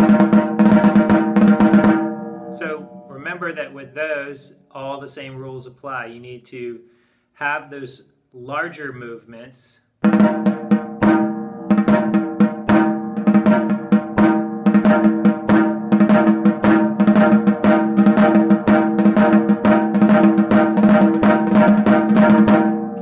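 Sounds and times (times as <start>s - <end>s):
snare drum roll with sticks: 0.0s - 2.1s, 10.0s - 22.8s.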